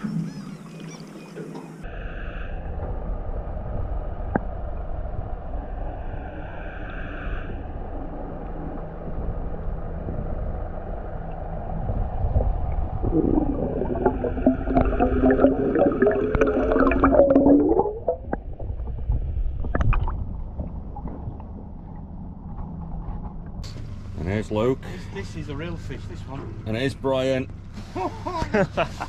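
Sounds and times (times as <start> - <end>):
low rumble: 2.3 - 26.7
droning tone with pops: 2.6 - 5.8, 6.8 - 24.0
underwater bubbles gurgling: 8.4 - 22.6.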